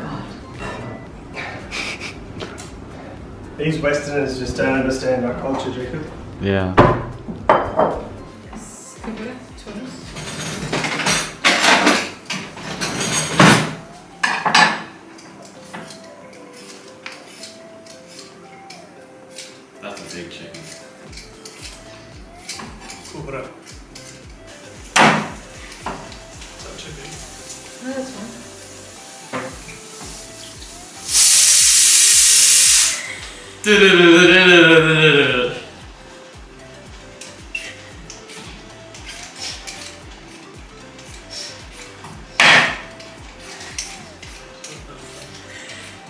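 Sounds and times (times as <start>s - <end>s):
background music with steady beat: 0.0s - 46.0s
rustling scraping and clattering: 10.1s - 13.8s
pressure cooker whistling: 31.0s - 33.1s.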